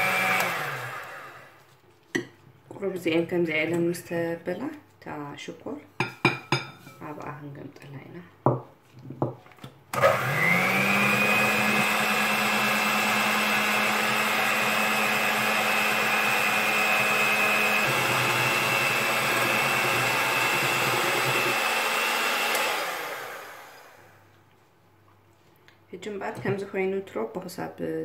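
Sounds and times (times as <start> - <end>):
electric hand mixer whine: 0.0 - 1.6, 9.9 - 24.2.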